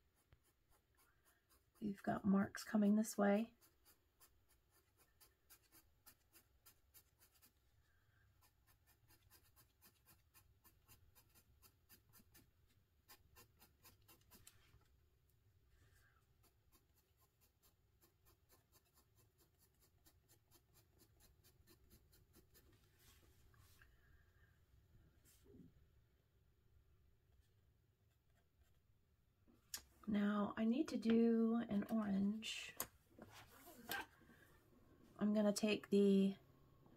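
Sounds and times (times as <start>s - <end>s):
pencil scratching on paper: 0.0s - 7.7s, 8.3s - 14.8s, 16.3s - 23.2s.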